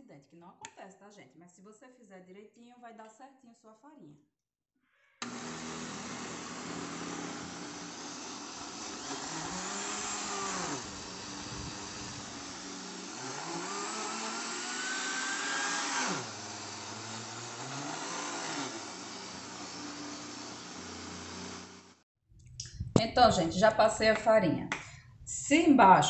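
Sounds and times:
blender grinding dry mix: 5.2s - 22.0s.

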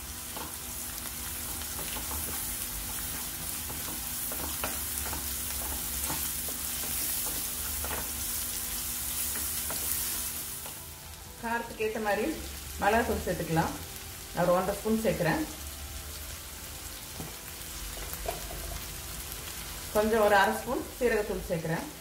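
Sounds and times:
onions sizzling in hot oil: 0.0s - 22.0s.

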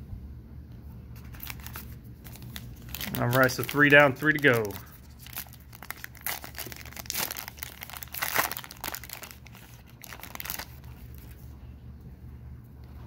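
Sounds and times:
wrapper tearing and crinkling: 1.2s - 11.4s.

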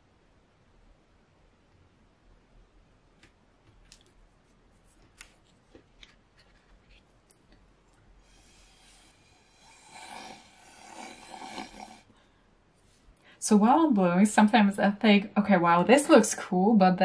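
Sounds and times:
paper and tools handled: 4.5s - 7.3s
breath blown through a straw: 8.2s - 12.2s.

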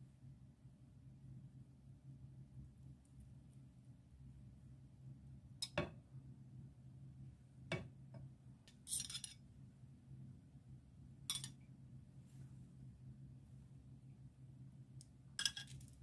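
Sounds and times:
faint low hum: 0.0s - 16.0s
tongs clinking against dishes: 5.6s - 5.8s, 8.7s - 9.4s, 11.3s - 11.6s, 15.4s - 15.8s
tongs scraping: 8.7s - 9.4s, 11.3s - 11.6s, 15.4s - 16.0s.

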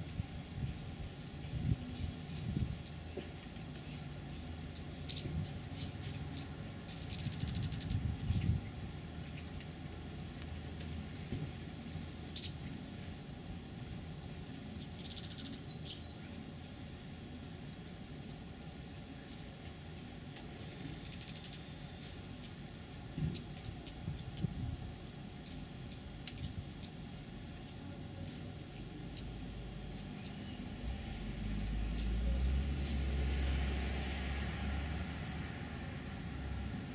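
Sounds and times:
bird twittering runs: 3.8s - 5.4s, 12.4s - 12.7s.

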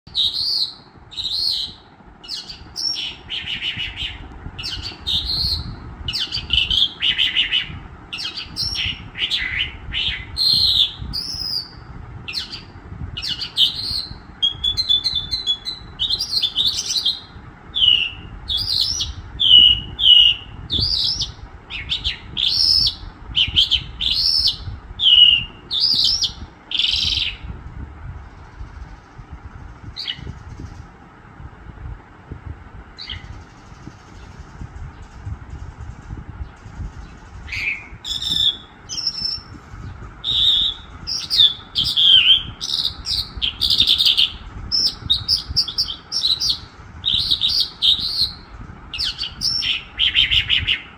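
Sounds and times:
songbird singing whistled phrases: 0.1s - 27.5s, 37.5s - 50.9s.

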